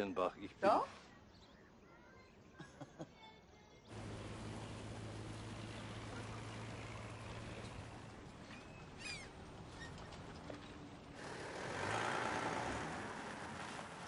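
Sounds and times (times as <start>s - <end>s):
car driving: 3.9s - 14.0s.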